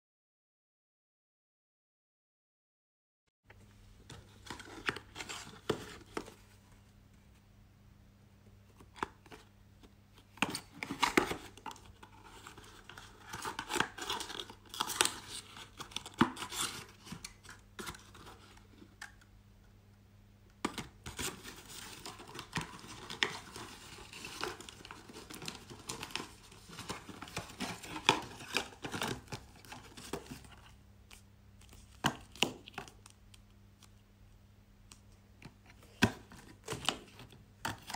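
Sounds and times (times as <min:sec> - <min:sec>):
cardboard crinkling and scraping: 0:04.0 - 0:06.6, 0:21.0 - 0:30.8.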